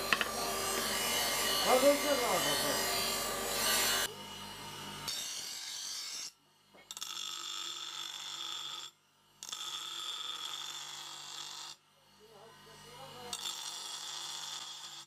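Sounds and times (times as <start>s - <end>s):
grinder motor hum: 0.0s - 5.1s
grinder wheel grinding steel: 0.0s - 6.3s.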